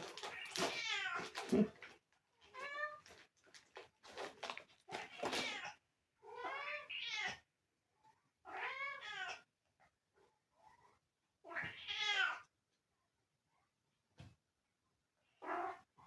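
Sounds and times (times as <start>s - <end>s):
cat meowing: 4.9s - 7.4s, 8.5s - 9.5s, 11.4s - 12.5s.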